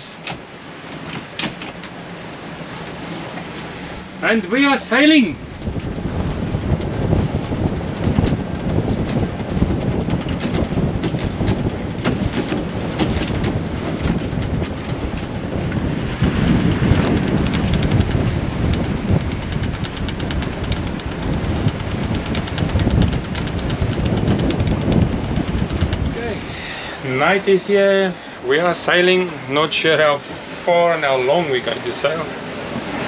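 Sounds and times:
sea water rushing along hulls: 0.0 - 33.0
wind buffeting microphone: 0.0 - 33.0.

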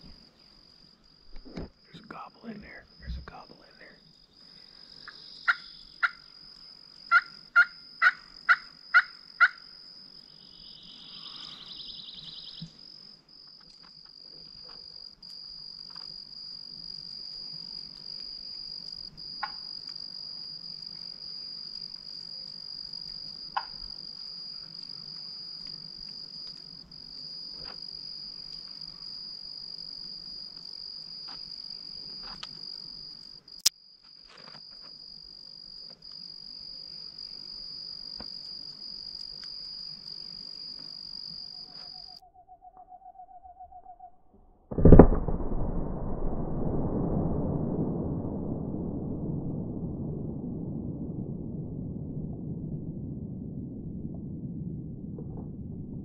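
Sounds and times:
insect trilling: 0.0 - 13.2, 34.6 - 44.3.

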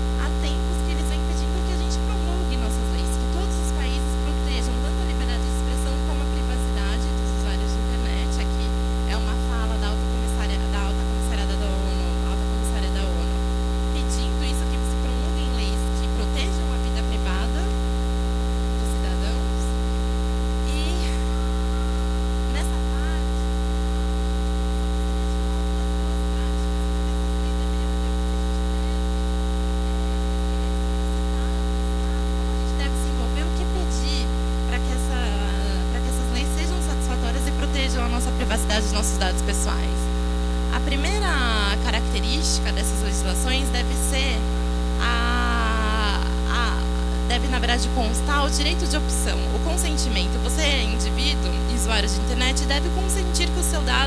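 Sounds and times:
electrical mains hum: 0.0 - 54.0
faint voices: 20.6 - 23.6, 24.9 - 44.4.

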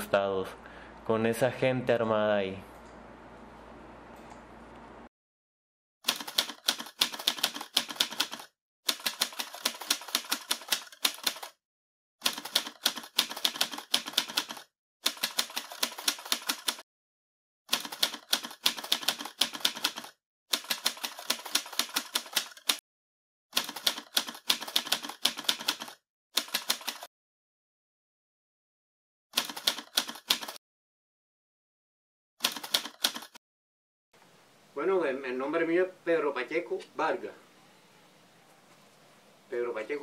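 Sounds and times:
typewriter keys clattering: 6.1 - 11.6, 17.8 - 22.8, 23.6 - 27.1, 29.4 - 30.6, 32.4 - 33.4.

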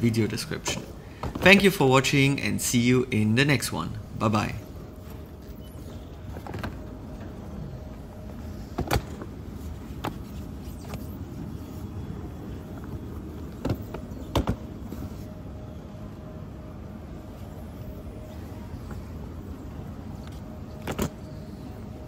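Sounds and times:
background hum: 0.0 - 22.0
suitcases knocking and clicking: 0.6 - 1.6, 5.8 - 7.4, 8.6 - 9.4, 13.3 - 14.8, 20.7 - 21.3.

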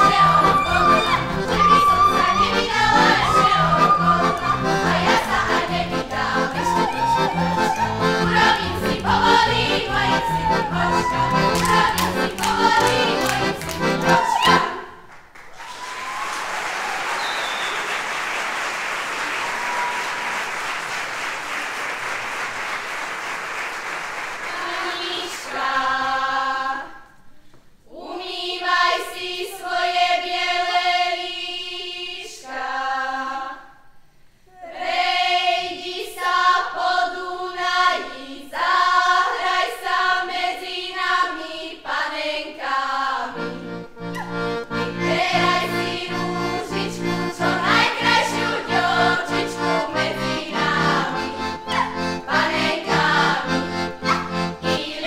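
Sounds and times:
folk band playing: 0.0 - 14.6, 43.5 - 55.0.

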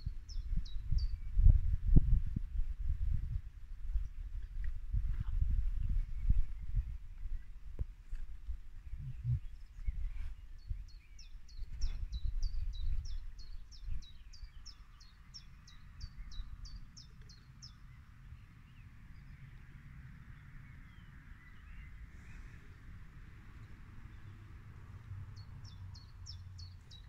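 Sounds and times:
low rumbling noise: 0.0 - 10.5.

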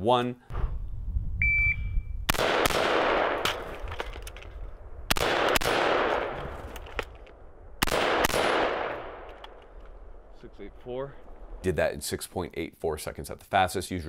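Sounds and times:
shot timer beep: 1.4 - 2.1
gunshot echo: 2.3 - 3.8, 5.1 - 6.7, 7.8 - 9.4
sharp cracks and clicks: 2.3 - 10.0.

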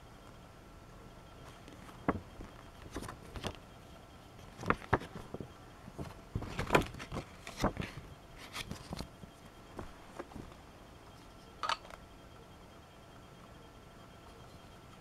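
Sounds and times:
paper crinkling and rustling: 1.4 - 3.6, 4.3 - 10.6.

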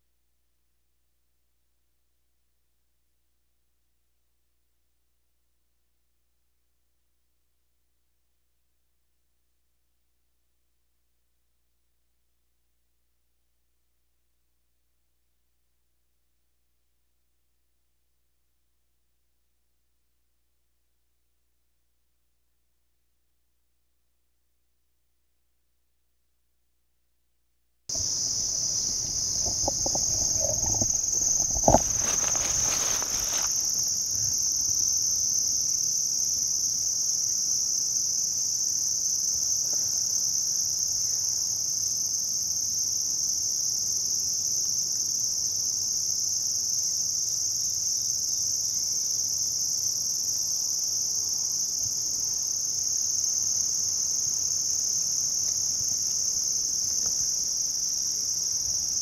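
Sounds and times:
crickets and insects chirping: 27.9 - 59.0
brief rustle: 29.2 - 33.7.

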